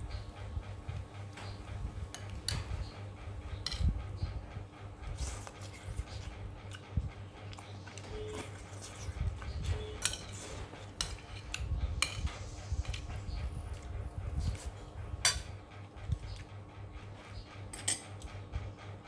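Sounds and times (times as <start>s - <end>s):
low steady rumble: 0.0s - 19.0s
metal spoon clinking on plate: 10.0s - 10.4s.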